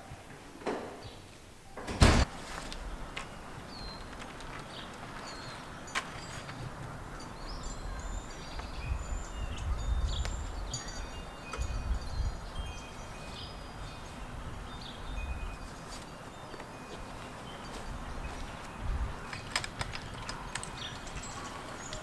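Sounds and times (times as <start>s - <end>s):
wind buffeting microphone: 2.0s - 16.2s, 17.0s - 22.0s
faint high tinkling tones: 7.1s - 18.9s, 20.6s - 22.0s.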